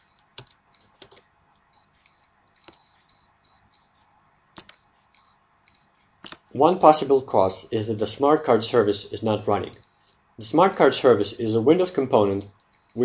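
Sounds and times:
keyboard and mouse clicks: 0.0s - 6.5s, 12.2s - 13.0s.

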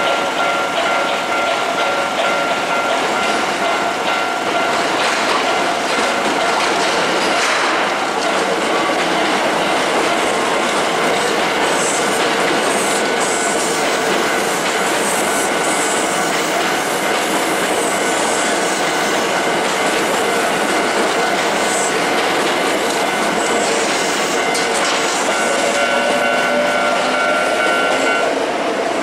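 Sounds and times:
train wheels rumbling on rails: 0.0s - 29.0s
clatter over rail joints: 0.4s - 15.6s, 18.7s - 25.8s.

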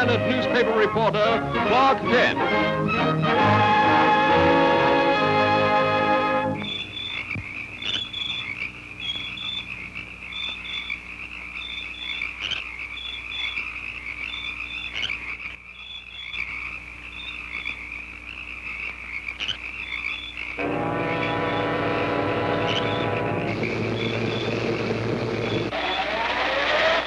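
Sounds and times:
frogs croaking: 6.5s - 26.2s
high trilling chorus: 20.6s - 24.7s.

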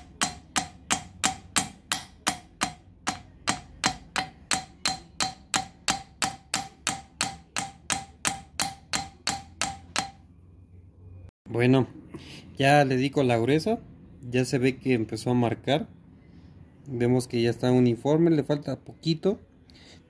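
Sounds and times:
screwdriver tapping metal valve: 0.0s - 10.2s.

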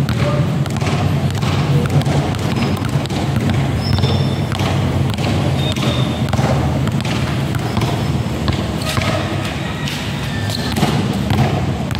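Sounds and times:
steady low hum: 0.0s - 9.6s
basketballs bouncing on concrete: 0.0s - 11.9s.

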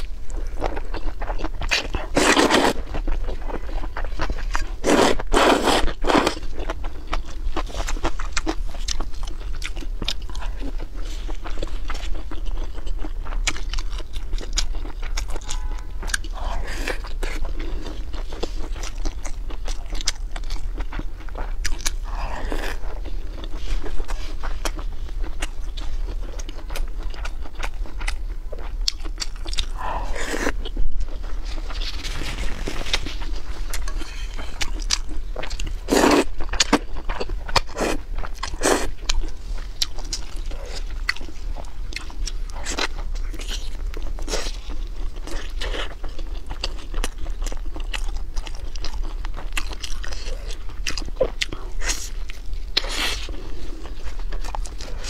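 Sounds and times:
chewing with wet mouth clicks: 0.0s - 31.8s, 32.5s - 55.0s
noodles slurped: 2.1s - 2.8s, 4.8s - 6.4s.

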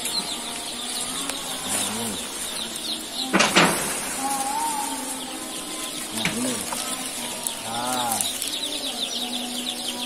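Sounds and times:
chicks peeping: 0.0s - 10.0s.

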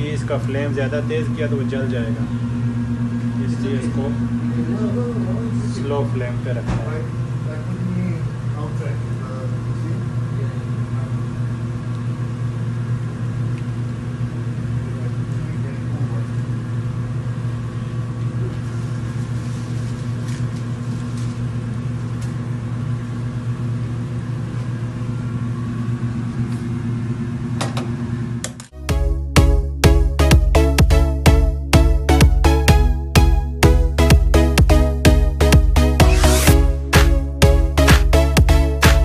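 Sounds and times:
electrical hum of machinery: 0.0s - 28.8s.

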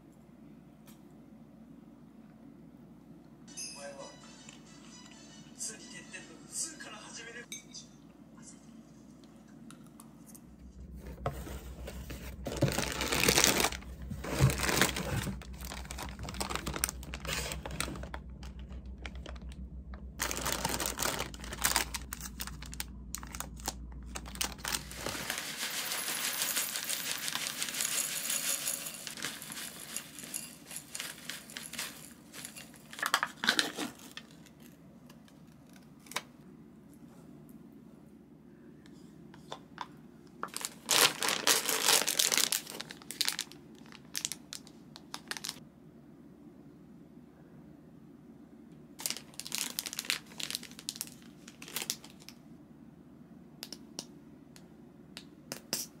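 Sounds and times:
plastic packaging crinkling: 12.0s - 34.8s, 40.4s - 45.6s, 49.0s - 52.4s.

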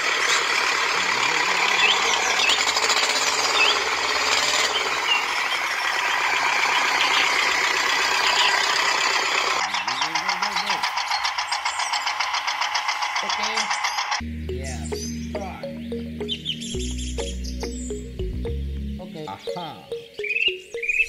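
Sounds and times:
toy motor whirring and grinding: 0.2s - 5.9s, 6.6s - 14.2s.

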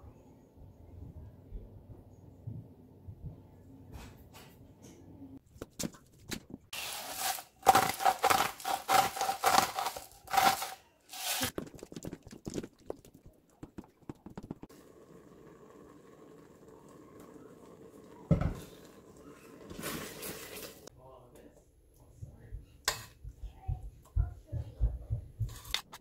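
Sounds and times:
salt grinder crunching: 6.8s - 12.1s.

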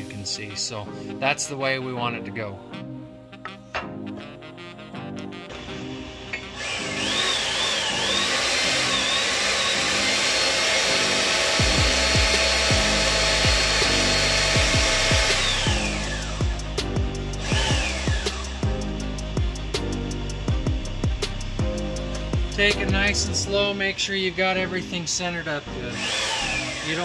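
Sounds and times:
background music with beat: 0.0s - 9.1s, 9.8s - 25.2s
hydraulic pump hissing and whining: 5.5s - 27.0s.

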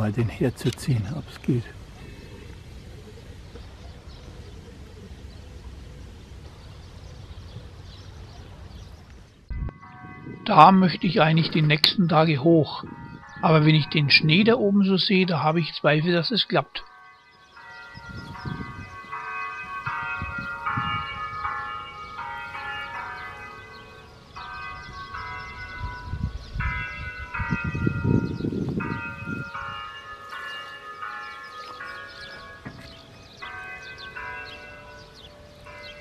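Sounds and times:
church bells playing melody: 9.5s - 36.0s.

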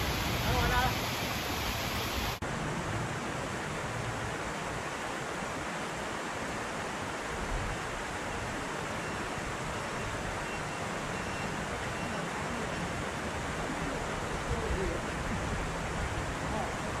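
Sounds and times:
creek water rushing: 0.0s - 17.0s.

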